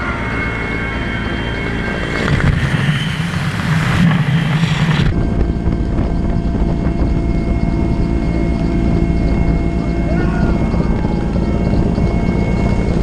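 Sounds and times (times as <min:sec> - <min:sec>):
wind rushing: 0:00.0 - 0:07.6
helicopter rotor droning: 0:00.0 - 0:13.0.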